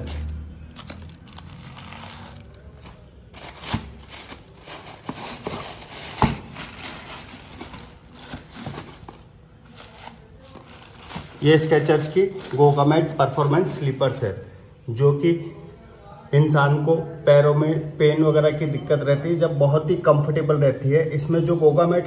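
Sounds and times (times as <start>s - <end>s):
tissue paper crinkling: 0.0s - 14.2s.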